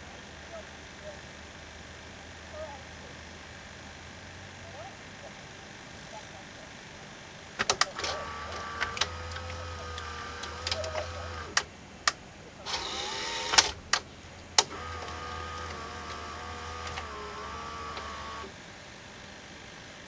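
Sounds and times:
brief whirr: 7.6s - 11.7s, 12.6s - 14.0s, 14.6s - 18.6s
tape mechanism motor whine: 7.6s - 11.7s, 12.6s - 18.6s
sharp mechanism clicks: 7.6s - 14.0s, 14.6s - 18.5s.

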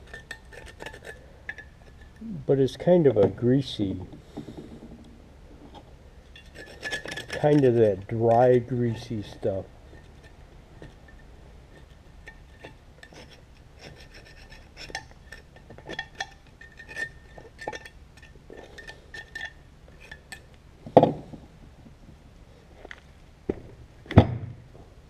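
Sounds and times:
hand tool scraping metal: 0.0s - 5.0s, 5.6s - 20.6s.

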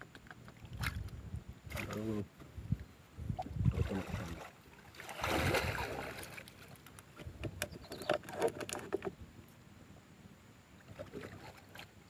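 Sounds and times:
water splashing and sloshing: 0.0s - 9.2s, 10.7s - 12.0s
light clicks and rattles: 6.5s - 9.2s.

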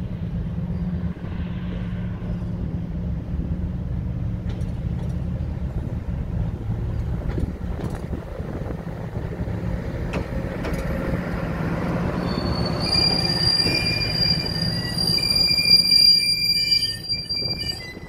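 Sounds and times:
train engine rumble: 0.0s - 18.0s
high-pitched wheel squeal: 12.2s - 18.0s.

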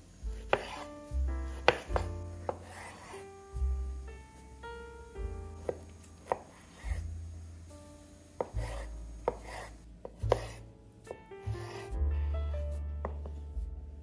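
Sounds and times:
knife chopping on wooden board: 0.3s - 0.9s, 1.5s - 3.2s, 5.6s - 7.1s, 8.4s - 10.6s.

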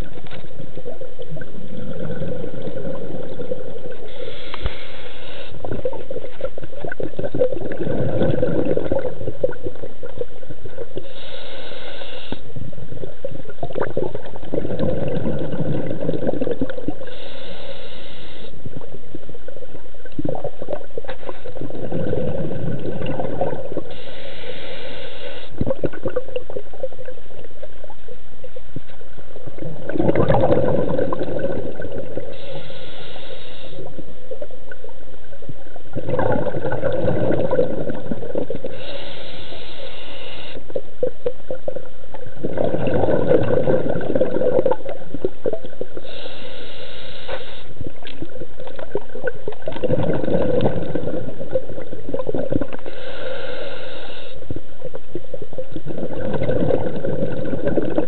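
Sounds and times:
bubbling exhaust: 0.8s - 11.7s, 13.0s - 17.3s, 20.0s - 24.1s, 29.4s - 33.8s, 35.8s - 58.0s
hissing regulator inhale: 4.0s - 5.9s, 11.0s - 12.6s, 17.0s - 18.7s, 23.8s - 25.6s, 32.2s - 34.0s, 38.5s - 40.8s, 46.0s - 48.0s, 52.7s - 54.6s.

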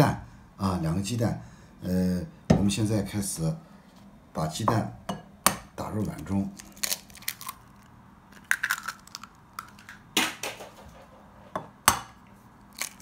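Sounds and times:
eggs cracking against bowl: 6.0s - 10.6s, 12.6s - 13.0s.

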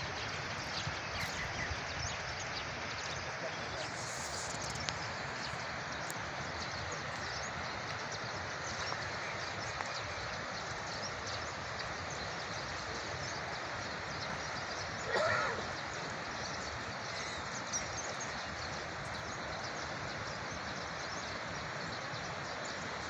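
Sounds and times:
rushing outdoor noise: 0.0s - 23.0s
faint ticks: 4.5s - 5.1s.

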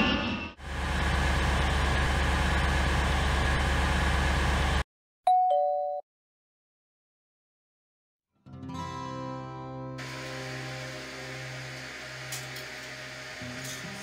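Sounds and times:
vehicle driving rumble: 0.6s - 4.8s
two-tone doorbell chime: 5.3s - 6.0s.

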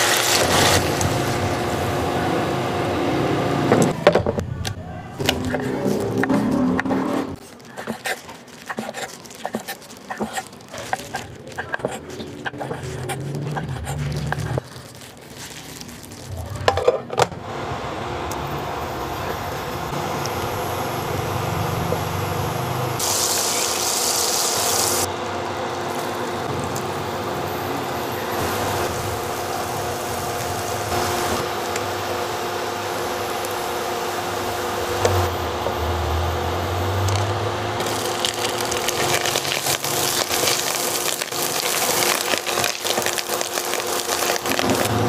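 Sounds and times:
wooden spoon stirring: 5.2s - 6.5s, 7.4s - 16.3s, 37.8s - 44.9s
butter sizzling in a frying pan: 23.0s - 25.1s, 37.8s - 45.0s.

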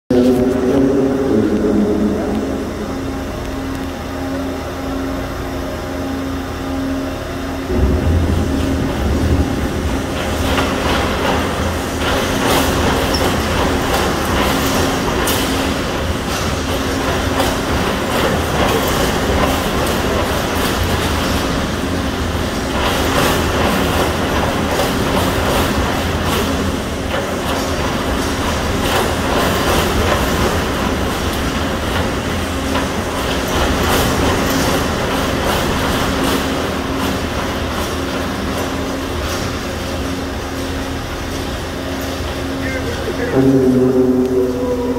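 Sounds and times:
steady hum: 0.0s - 44.9s
loud steady rumble of shake table: 0.1s - 44.9s
rattling and knocking of steel frame: 7.8s - 40.9s.

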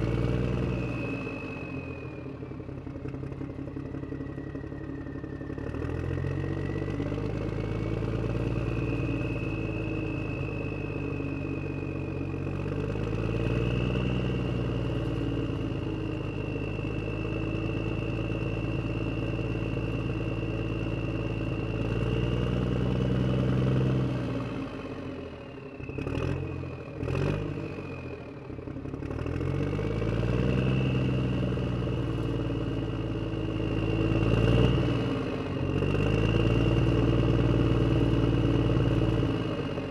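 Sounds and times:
steady high whine: 0.0s - 29.0s
motor engine running: 0.0s - 39.9s.

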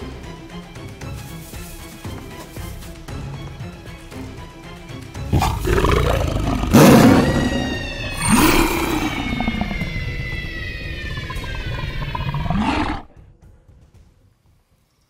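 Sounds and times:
background music: 0.0s - 14.9s
tiger roars: 5.3s - 13.1s
long falling high tone: 7.0s - 12.5s.

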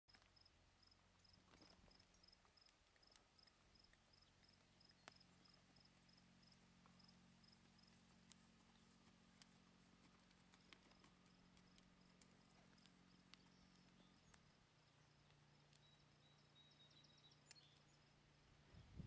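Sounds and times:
insect chirping: 0.1s - 19.0s
soft clicks: 15.2s - 16.6s.

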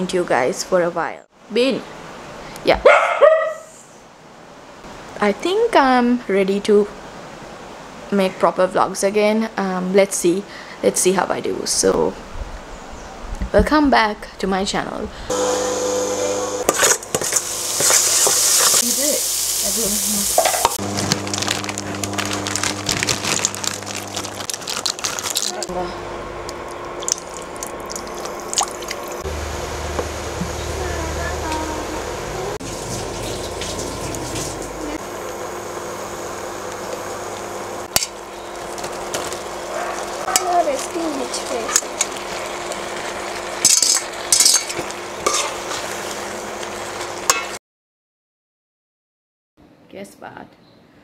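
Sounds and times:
onions sizzling in oil: 15.3s - 25.6s, 28.3s - 47.4s
sauce sizzling in a pan: 17.1s - 20.8s
steady low hum: 20.8s - 42.1s
water boiling with popping bubbles: 26.5s - 29.3s.

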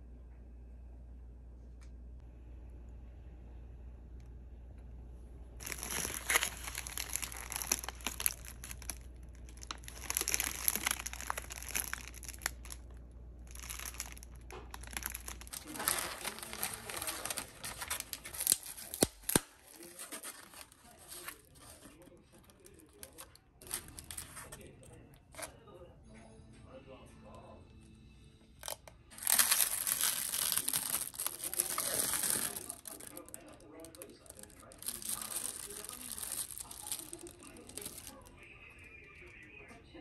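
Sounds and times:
plastic packaging tearing: 5.6s - 24.7s, 28.6s - 38.3s
plastic packaging crinkling: 5.6s - 25.5s, 28.6s - 39.3s.

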